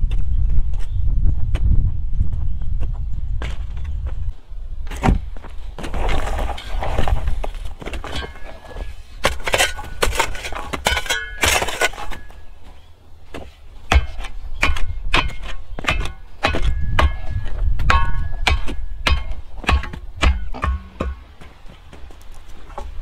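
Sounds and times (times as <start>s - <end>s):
tamping bar thuds and stony clinks: 13.3s - 21.6s.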